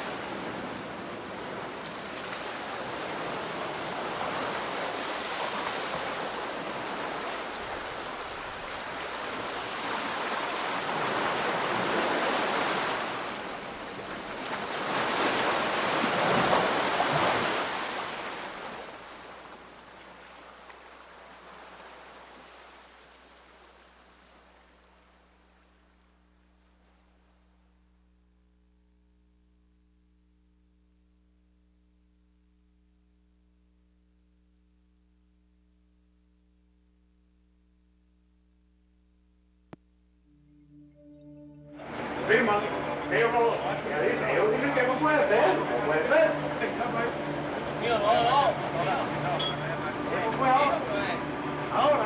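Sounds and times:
water rushing: 0.0 - 26.1, 41.8 - 52.0.

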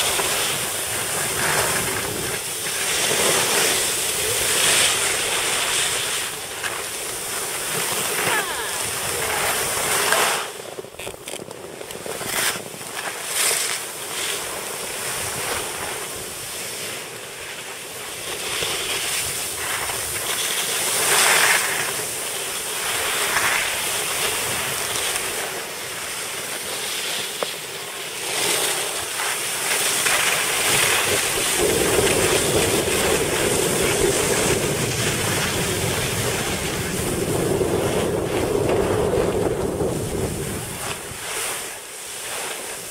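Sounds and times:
wind noise on microphone: 0.0 - 13.5, 29.5 - 42.9
skis scraping over snow: 0.0 - 42.9.

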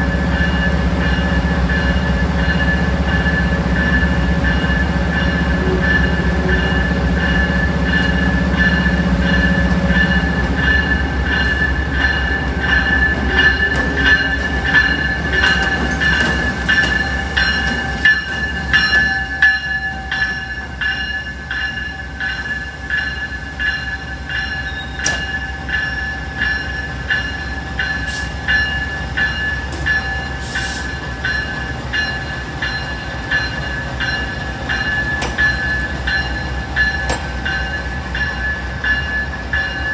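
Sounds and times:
locomotive bell ringing: 0.0 - 39.9
low rumble of locomotive: 0.0 - 39.9.

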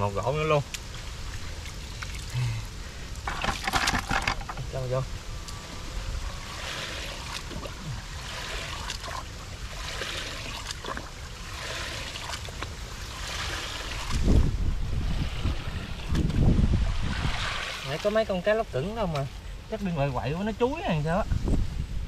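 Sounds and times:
wind rumble on microphone: 0.0 - 22.0
muddy water splashing: 5.4 - 20.0.

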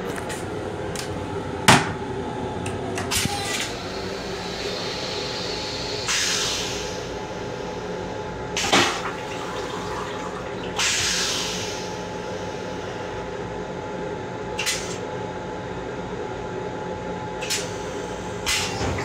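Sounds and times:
railcar hum: 0.0 - 14.7
toilet flush rush: 3.2 - 13.1
toilet flush clack: 8.6 - 11.2.

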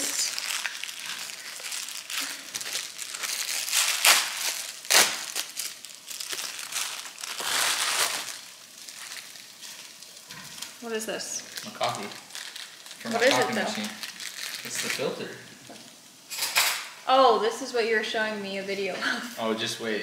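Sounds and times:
plastic mailer crinkling: 0.0 - 15.3
sharp plastic crackles: 0.0 - 16.9.

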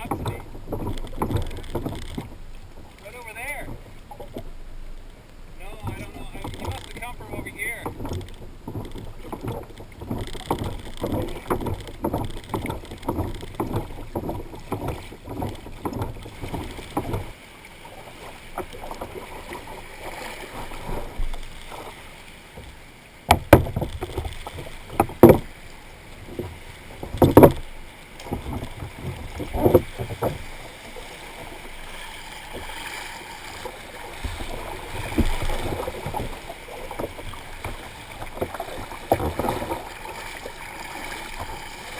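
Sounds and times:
knocks on kayak hull: 0.0 - 4.5, 5.6 - 17.4, 22.6 - 25.6, 26.2 - 30.7, 33.5 - 40.6
water splashing against kayak hull: 0.0 - 41.9.

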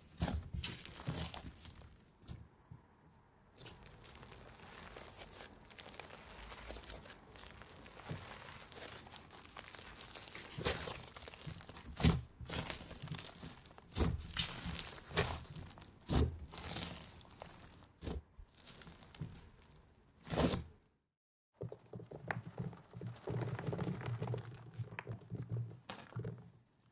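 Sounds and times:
slime crackling: 0.0 - 2.4, 3.6 - 20.7
slime popping: 3.6 - 20.6.

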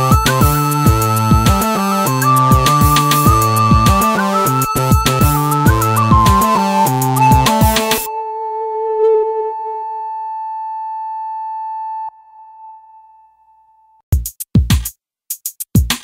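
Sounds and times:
electronic drum beats: 0.0 - 8.1, 14.1 - 16.0
sustained synth note: 0.0 - 14.0.

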